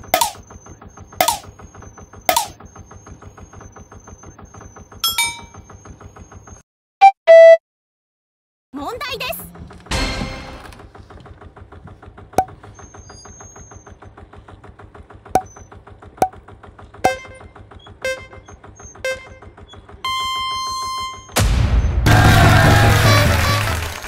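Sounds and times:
rapid electronic ticking: 0.0s - 5.0s, 17.1s - 17.4s
sharp pops: 1.2s - 1.5s, 2.3s - 2.6s.

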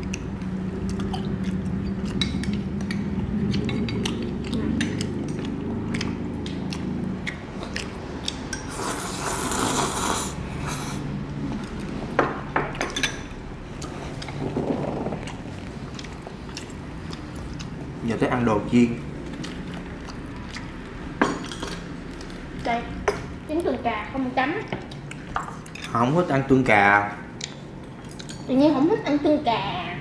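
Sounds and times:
chewing: 0.0s - 10.1s, 13.8s - 18.0s, 19.2s - 22.6s, 24.7s - 26.0s, 27.4s - 28.5s
low steady hum: 0.0s - 30.0s
chopsticks clicking on bowls: 0.1s - 8.7s
noodle slurp: 8.7s - 11.0s.

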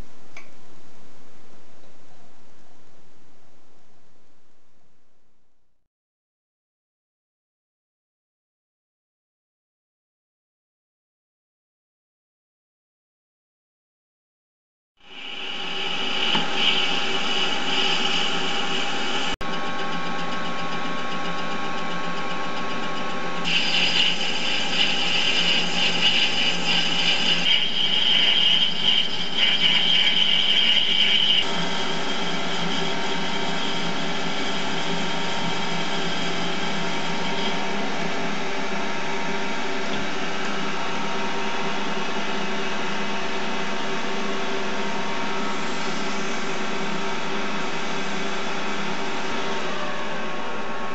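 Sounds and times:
harsh metal cutting noise: 15.1s - 19.4s, 23.4s - 37.6s
lathe humming: 15.1s - 41.4s.

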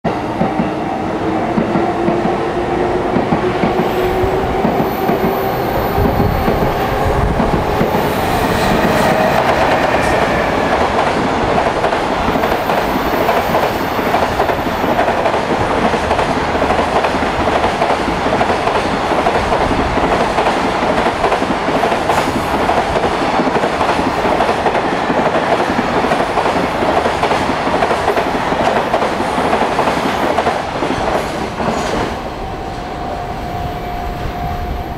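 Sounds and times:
locomotive whine: 1.2s - 14.0s, 32.2s - 34.9s.

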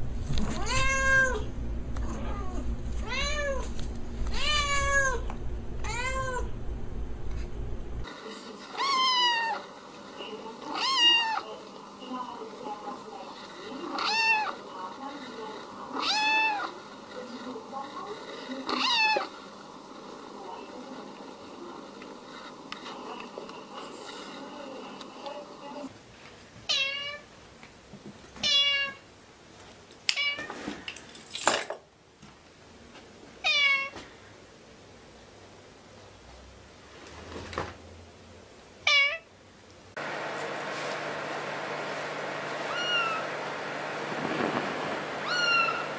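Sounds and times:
cat meowing: 0.5s - 3.7s, 4.3s - 6.5s, 8.7s - 9.6s, 10.6s - 11.4s, 13.9s - 14.6s, 15.9s - 16.7s, 26.7s - 27.2s, 28.4s - 29.0s, 33.4s - 34.0s, 38.8s - 39.3s, 42.7s - 43.3s, 45.2s - 45.9s
kitten meowing high-pitched: 0.6s - 1.4s, 38.9s - 39.2s, 42.7s - 43.2s, 45.2s - 45.8s.

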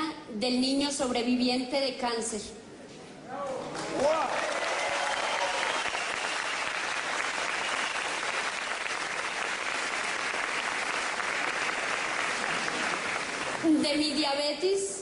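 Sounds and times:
audience applauding: 3.6s - 13.8s.

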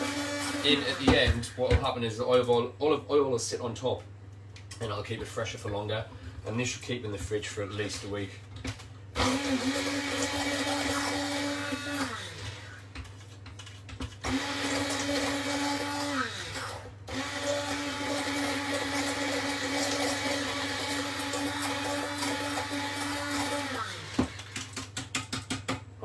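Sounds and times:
stick blender motor whirring: 0.0s - 1.4s, 9.2s - 13.0s, 14.2s - 24.8s.

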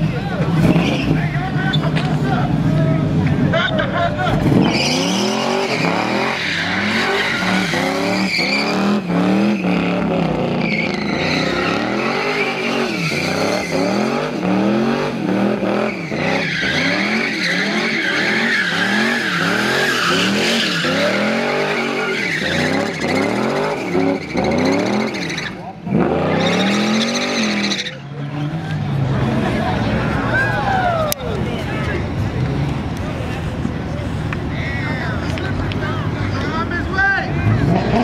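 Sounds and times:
car engine revving: 0.0s - 30.3s, 37.3s - 38.0s
tyres squealing: 4.5s - 14.4s, 15.7s - 28.5s.

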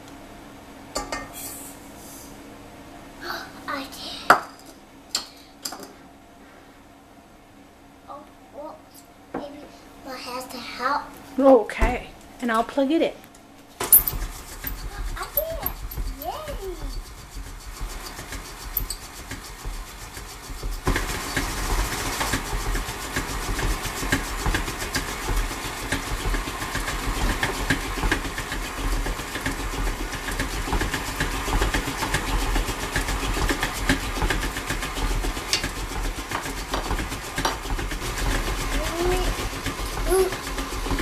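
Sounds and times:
stand mixer motor running: 13.8s - 41.0s.

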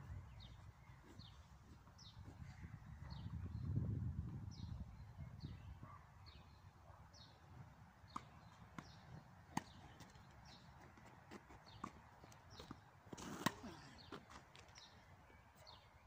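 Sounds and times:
bird chirping: 4.5s - 7.4s
racket hitting ball: 8.1s - 10.2s
tennis ball bouncing: 8.1s - 14.2s.

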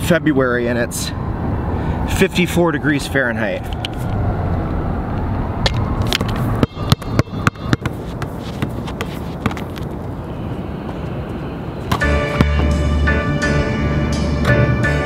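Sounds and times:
traffic noise: 0.0s - 15.0s
music: 12.0s - 15.0s.

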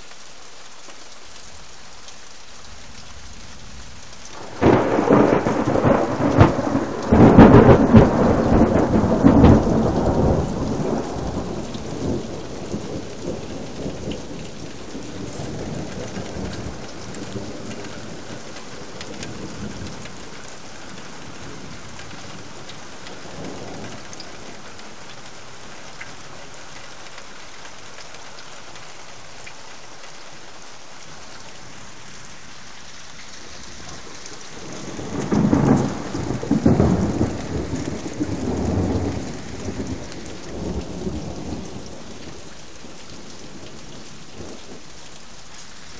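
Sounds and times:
rain hissing: 0.0s - 45.9s
thunder rumbling: 3.6s - 26.6s, 33.3s - 45.9s.

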